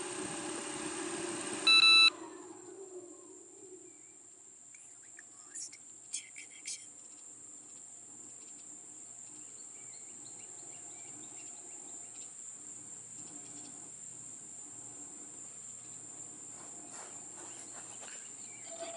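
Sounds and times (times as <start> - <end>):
faint bird chirps: 1.7 - 12.4, 17.4 - 18.9.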